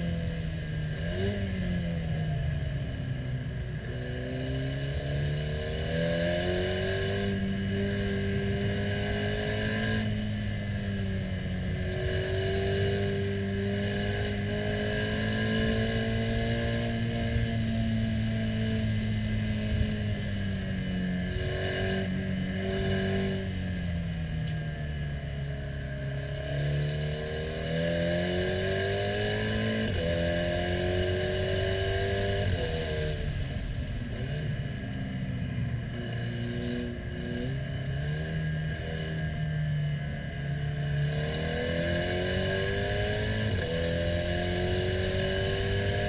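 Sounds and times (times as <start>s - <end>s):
turbocharged car engine revving: 40.8s - 46.0s.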